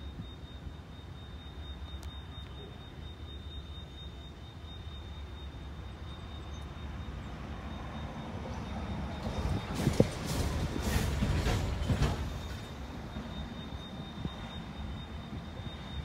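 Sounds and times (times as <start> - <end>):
diesel locomotive engine rumble: 0.0 - 16.0
high-pitched whine: 11.9 - 16.0.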